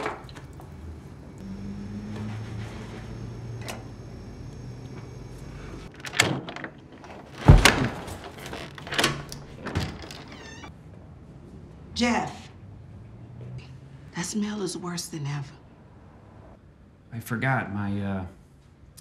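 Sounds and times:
door chain lock clicks and rattles: 5.9s - 10.7s.

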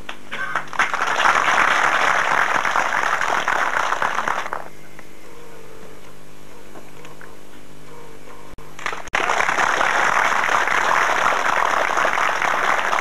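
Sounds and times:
low steady hum: 0.0s - 13.0s
crowd applauding: 0.5s - 4.7s, 8.8s - 13.0s.

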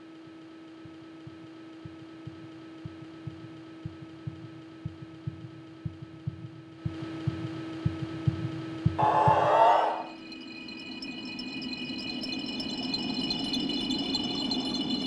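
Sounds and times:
heartbeat-like thuds: 0.8s - 9.6s
low hum: 8.6s - 10.2s.

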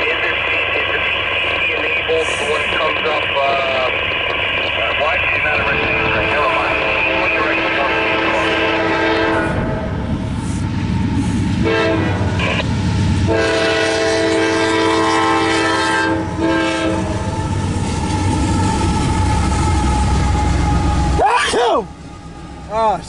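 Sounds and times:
diesel train rumbling: 0.0s - 23.0s
locomotive air horn blasts: 5.6s - 9.8s, 11.6s - 12.6s, 13.3s - 17.5s.

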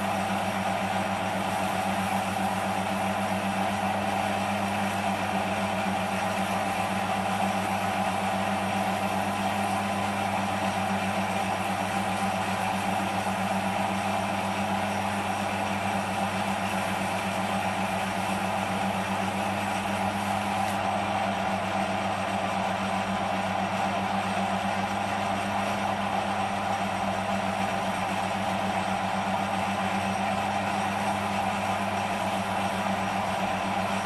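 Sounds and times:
metal lathe motor humming: 0.0s - 23.2s, 25.1s - 34.0s.

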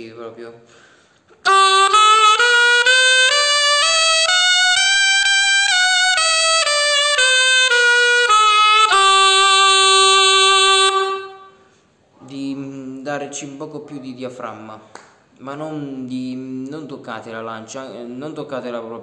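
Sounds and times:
shawm playing a scale: 1.4s - 11.8s.

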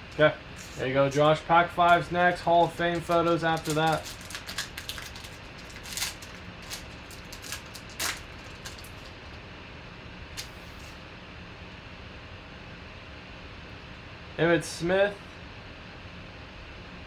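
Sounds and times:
room hum: 0.0s - 17.0s
foil wrapper tearing and crinkling: 2.6s - 9.3s
cards sliding out of wrapper: 2.9s - 9.1s.

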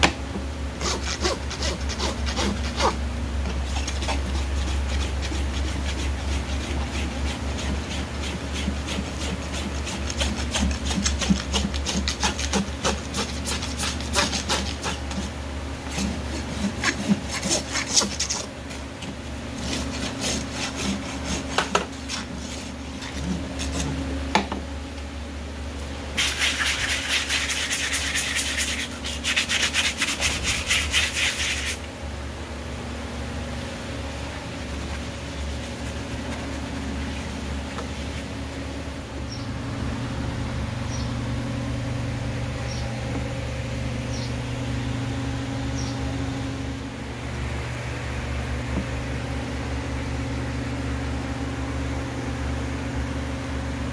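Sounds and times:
hoof rasp scraping hoof: 0.8s - 18.8s, 19.5s - 24.1s.

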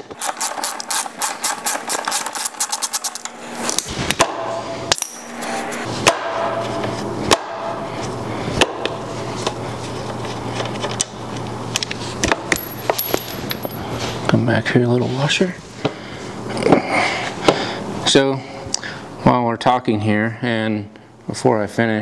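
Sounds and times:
low hum: 0.0s - 14.3s.

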